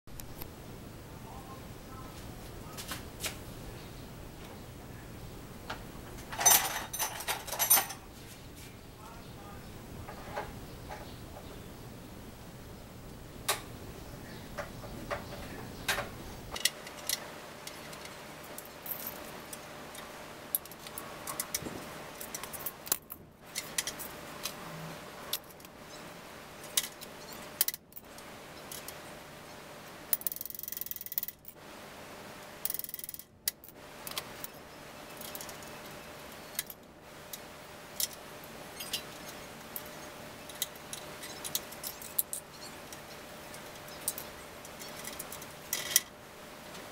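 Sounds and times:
metal tools clinking on bicycle: 0:06.2 - 0:08.0, 0:43.6 - 0:46.1.

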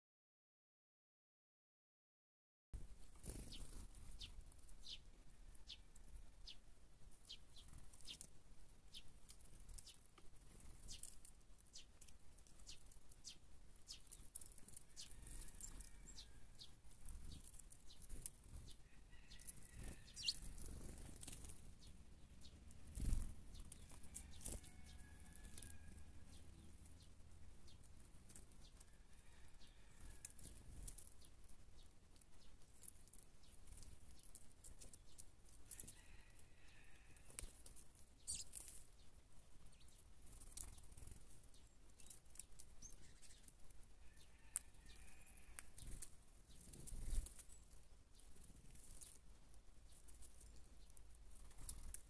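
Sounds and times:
birds pecking with sharp ticks: 0:02.8 - 0:52.0
faint bird chirps: 0:12.6 - 0:21.0, 0:38.2 - 0:38.7, 0:41.6 - 0:49.2.

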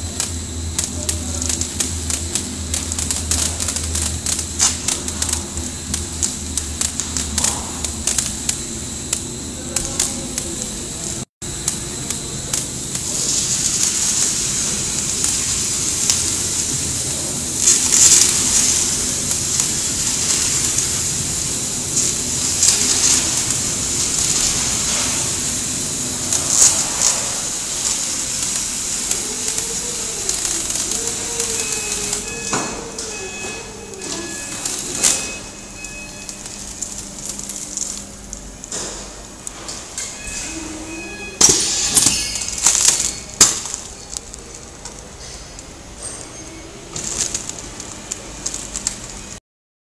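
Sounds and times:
rapid clicks: 0:00.0 - 0:13.1
stretch-wrapping machine hissing: 0:00.0 - 0:49.4
wavering tone: 0:16.0 - 0:38.6, 0:40.0 - 0:44.2.

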